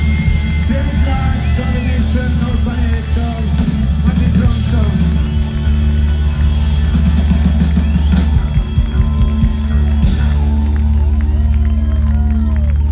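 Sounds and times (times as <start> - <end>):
drum rolls: 0.0 - 12.0
rock band sustained chord: 0.0 - 12.9.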